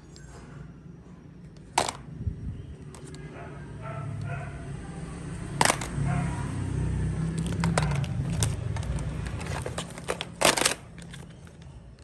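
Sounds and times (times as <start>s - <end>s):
phones clattering together: 1.6s - 2.1s, 5.6s - 6.0s, 7.4s - 11.7s.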